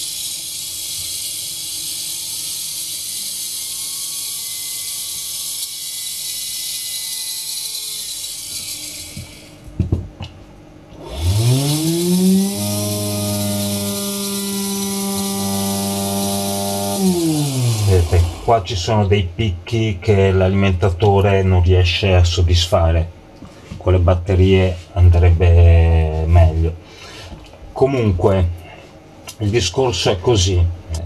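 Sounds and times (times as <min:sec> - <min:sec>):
electric motor whine: 0:00.0 - 0:09.7, 0:10.9 - 0:18.7.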